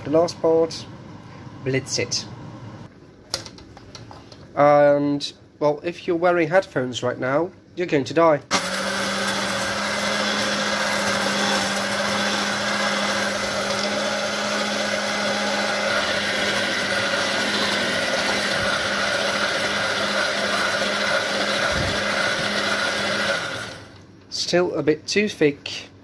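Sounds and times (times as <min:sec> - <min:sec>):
stick blender motor hum: 0:08.5 - 0:24.0.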